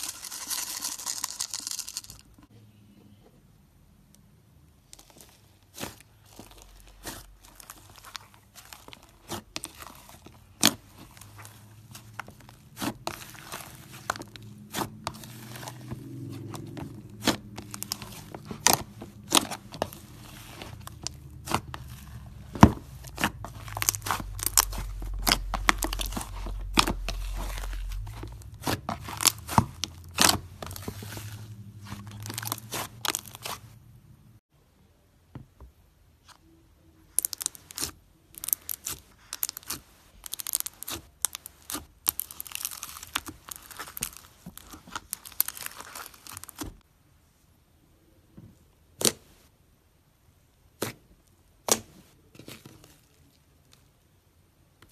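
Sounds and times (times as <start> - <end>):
slime squelching: 4.8 - 34.2, 36.2 - 46.8, 50.6 - 54.0
slime crackling and popping: 4.9 - 33.7, 37.1 - 46.8.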